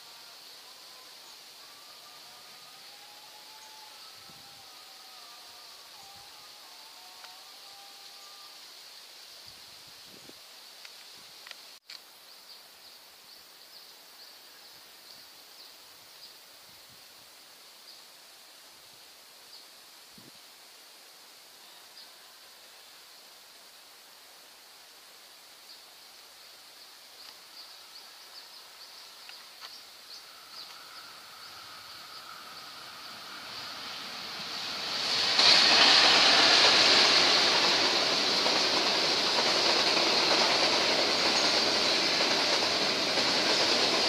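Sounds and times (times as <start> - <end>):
diesel train approaching: 0.0 - 8.7, 27.2 - 44.0
outdoor hush: 25.1 - 44.0.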